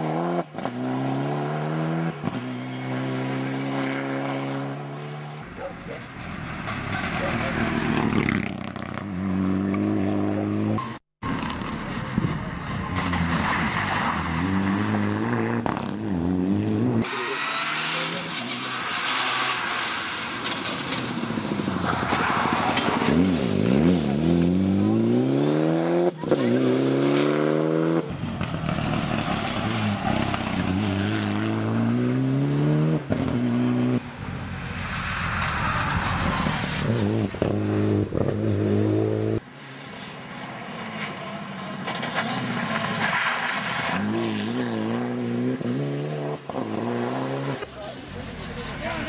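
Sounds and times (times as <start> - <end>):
rally car engine revving: 13.0 - 34.1, 35.8 - 39.4, 43.8 - 49.0.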